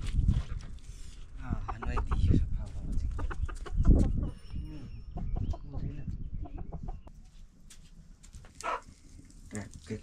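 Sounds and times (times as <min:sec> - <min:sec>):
chicken clucking: 0:01.6 - 0:04.4, 0:05.1 - 0:07.1.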